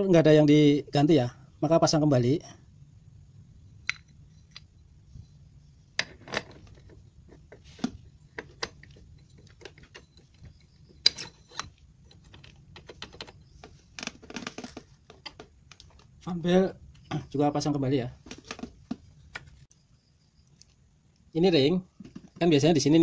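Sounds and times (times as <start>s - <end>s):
metal parts clicking and tapping: 6.0s - 16.1s.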